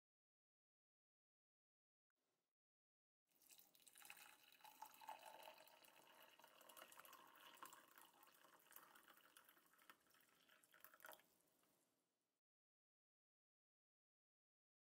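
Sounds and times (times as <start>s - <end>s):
water pouring into a glass mug: 3.4s - 11.4s.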